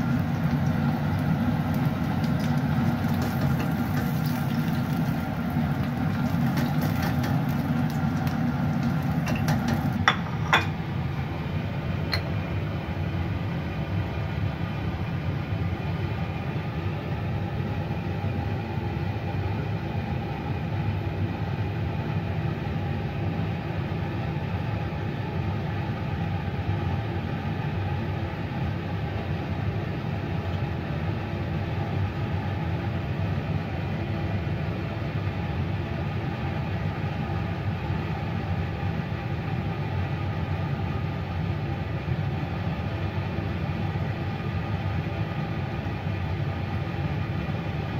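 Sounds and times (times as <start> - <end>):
kitchen appliance hum: 0.0 - 47.9.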